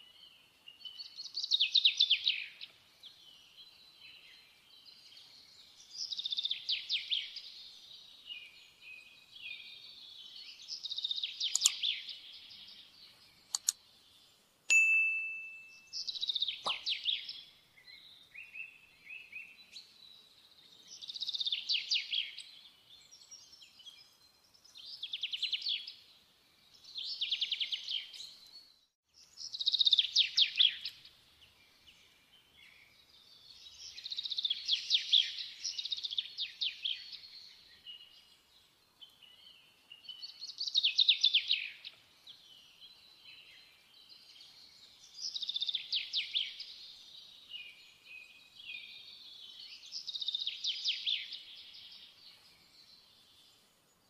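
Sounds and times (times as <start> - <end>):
songbird trilling: 11.0 - 12.3, 15.5 - 17.4
clicks: 11.5 - 11.8, 13.5 - 13.8
short bell-like ding: 14.7 - 15.9.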